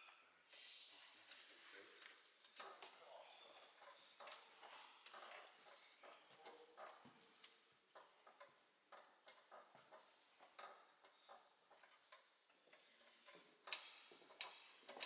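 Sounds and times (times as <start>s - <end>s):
faint clicks and knocks: 3.7s - 15.0s.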